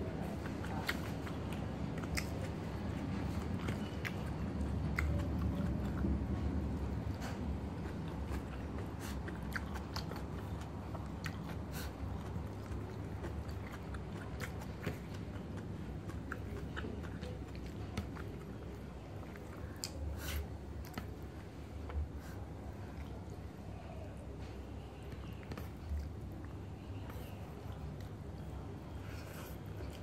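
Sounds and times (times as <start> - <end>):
person chewing food: 0.0 - 23.4, 25.0 - 30.0
wet mouth clicks: 0.5 - 2.6, 19.6 - 21.2.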